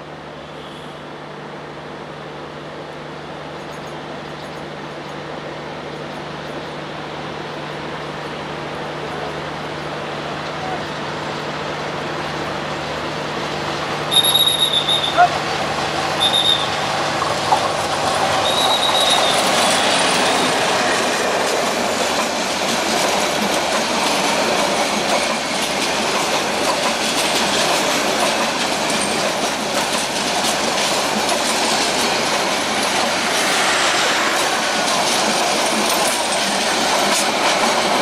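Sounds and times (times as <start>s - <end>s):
train wheels rumbling on rails: 2.4s - 38.0s
wheels squealing: 14.1s - 15.4s, 16.2s - 16.9s, 18.3s - 20.6s
clickety-clack over rail joints: 14.1s - 38.0s.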